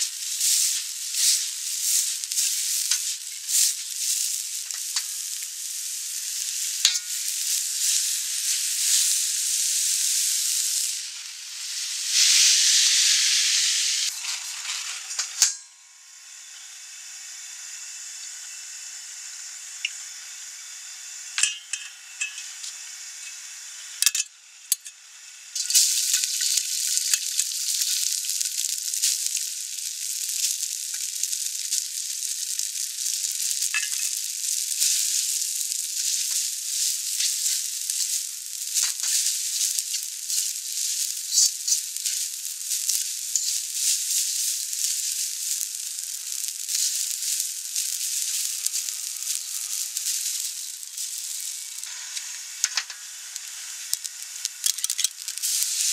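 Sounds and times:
noodles sizzling in hot oil: 0:00.0 - 0:55.9
metal spatula knocking wok: 0:21.4 - 0:22.5.

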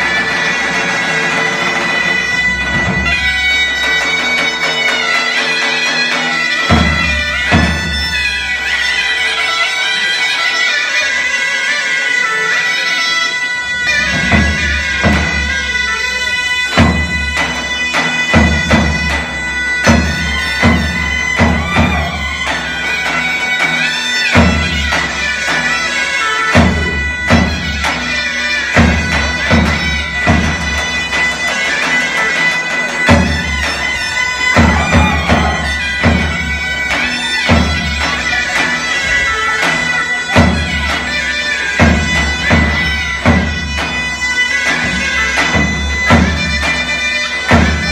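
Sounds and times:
zurna drone: 0:00.0 - 0:47.9
zurna melody: 0:00.0 - 0:47.9
drum beating heavy strokes: 0:19.9 - 0:23.0, 0:33.1 - 0:38.4.

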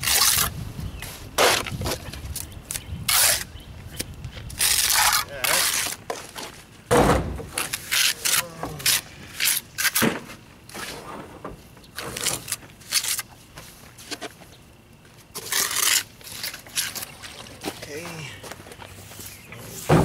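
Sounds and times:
heavy thud: 0:06.9 - 0:07.6.

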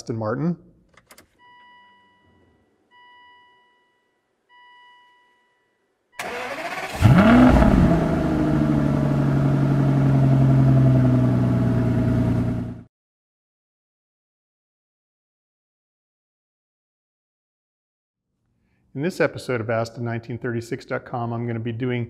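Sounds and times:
car warning chimes: 0:01.4 - 0:06.6
car engine revving and idling: 0:06.3 - 0:12.8.

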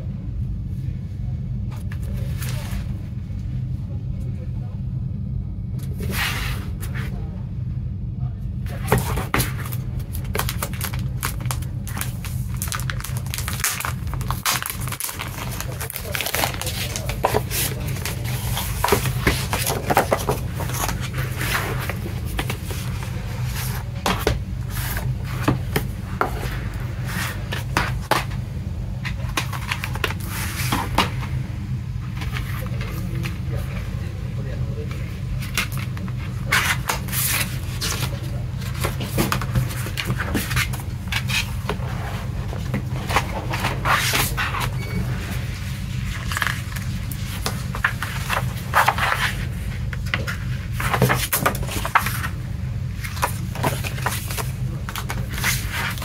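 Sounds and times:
steady low hum: 0:00.0 - 0:56.0
paper rustling: 0:08.7 - 0:28.4, 0:29.0 - 0:31.3, 0:34.8 - 0:56.0.

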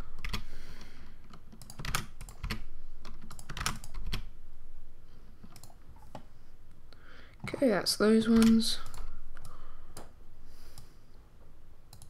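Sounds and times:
computer keyboard key presses: 0:01.3 - 0:04.3, 0:08.2 - 0:10.1.

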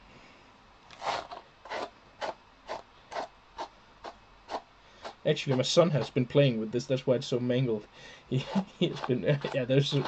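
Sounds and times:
tool brushing through sheep hair: 0:00.9 - 0:06.2, 0:08.4 - 0:10.0.

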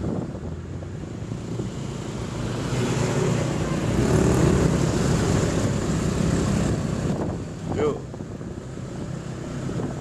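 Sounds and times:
passing traffic: 0:00.0 - 0:10.0
road noise: 0:00.0 - 0:10.0
wind noise: 0:00.0 - 0:10.0.

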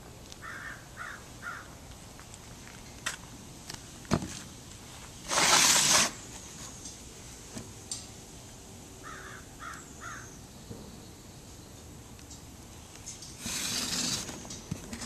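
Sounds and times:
cardboard box rustling scrape: 0:05.3 - 0:06.7, 0:13.4 - 0:15.0
bird calls: 0:09.0 - 0:12.4.

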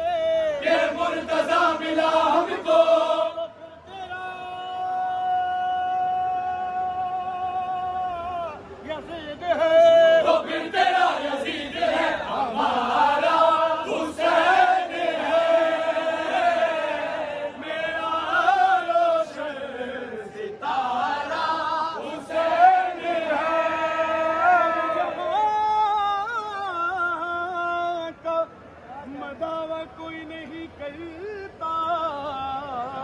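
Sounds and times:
men chanting together: 0:00.3 - 0:03.5, 0:09.6 - 0:25.4.

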